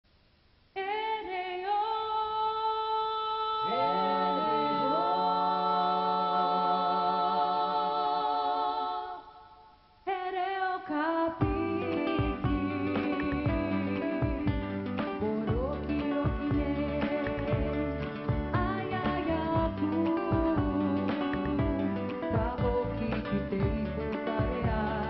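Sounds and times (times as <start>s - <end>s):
vocal group singing in harmony: 1.8s - 25.0s
guitar: 3.6s - 7.2s, 11.3s - 25.0s
bass guitar: 11.4s - 25.0s.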